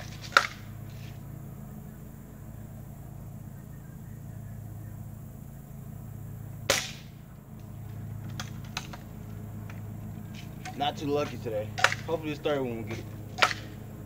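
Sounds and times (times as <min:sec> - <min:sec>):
air rifle shot crack: 0:06.7 - 0:07.2.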